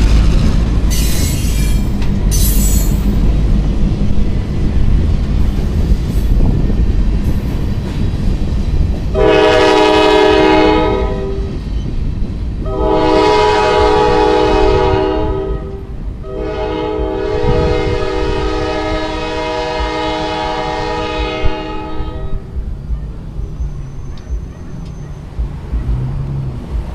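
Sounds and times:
low rumble of train: 0.0 - 26.9
locomotive air horn blasts: 9.1 - 11.6, 12.6 - 22.5.

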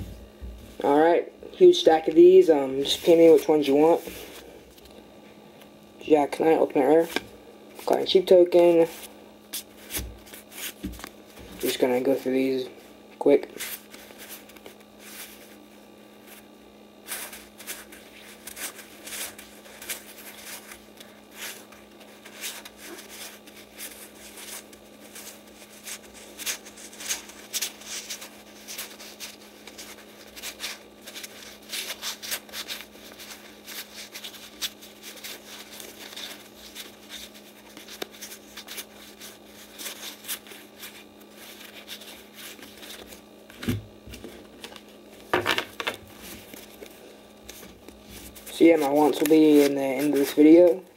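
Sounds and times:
steady low hum: 0.0 - 50.9
cards being flipped through: 8.8 - 12.5, 17.0 - 50.9.

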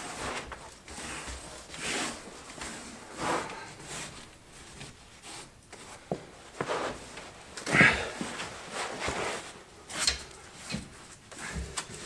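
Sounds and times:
man breathing heavily: 7.6 - 8.8.

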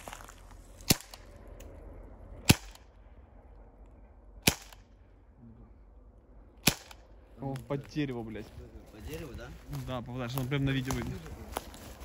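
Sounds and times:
air pistol shots: 0.8 - 1.2, 2.4 - 2.8, 4.4 - 4.9, 6.6 - 7.1.

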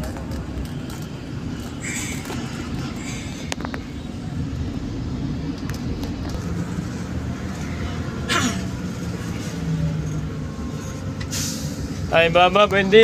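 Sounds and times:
bus engine low rumble: 0.0 - 13.0
brief hisses: 11.3 - 11.8.

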